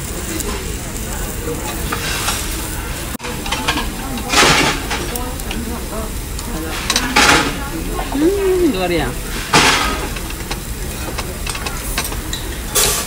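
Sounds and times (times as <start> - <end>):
distant chatter: 0.0 - 12.7.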